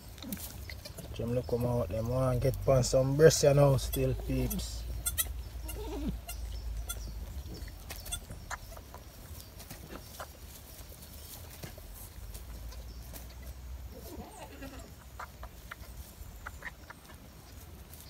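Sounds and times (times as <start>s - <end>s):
rustling in straw: 0.0s - 18.0s
goat kid bleating: 0.3s - 1.1s, 3.8s - 8.7s, 12.5s - 15.0s.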